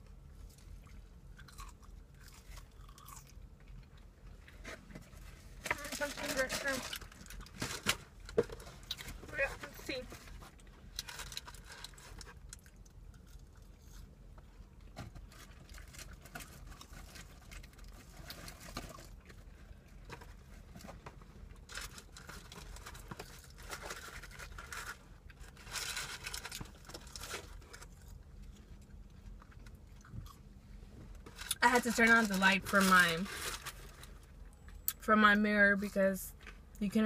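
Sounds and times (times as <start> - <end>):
paper wrapping crinkling: 21.7 - 28.2.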